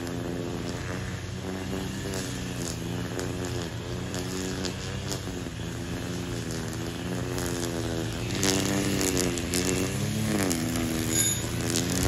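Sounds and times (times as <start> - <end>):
chainsaw engine running: 0.0 - 12.0.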